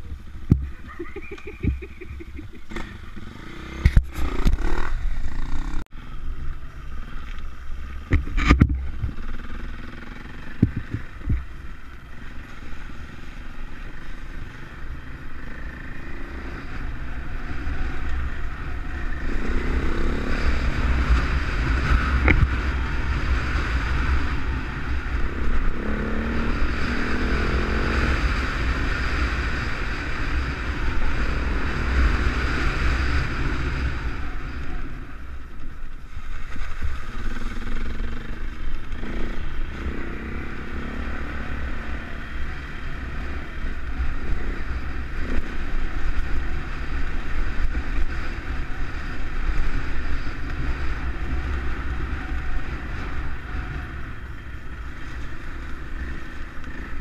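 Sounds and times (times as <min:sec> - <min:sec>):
dirt bike engine revving: 0:00.9 - 0:05.8, 0:14.0 - 0:34.6, 0:37.0 - 0:54.5
wind rumble on microphone: 0:06.1 - 0:09.3, 0:10.5 - 0:13.7, 0:16.6 - 0:37.8.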